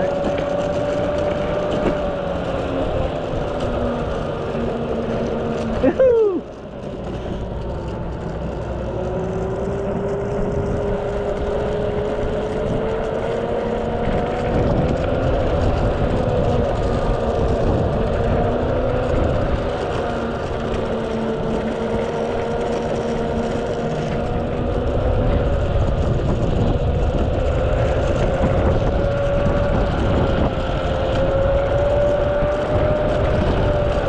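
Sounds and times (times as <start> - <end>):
electric skateboard motor whining: 0.0 - 34.0
wheels rumbling on asphalt: 0.0 - 34.0
wind on microphone: 8.8 - 34.0.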